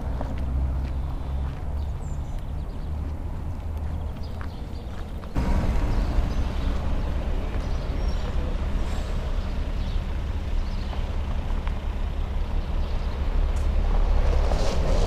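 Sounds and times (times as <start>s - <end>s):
steady low rumble: 5.0s - 15.0s.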